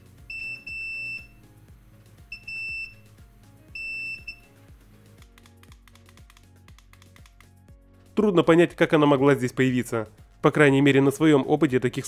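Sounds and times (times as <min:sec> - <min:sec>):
soft background music: 0:00.0 - 0:12.0
multimeter continuity beeps: 0:00.2 - 0:01.4, 0:02.3 - 0:03.1, 0:03.7 - 0:04.5.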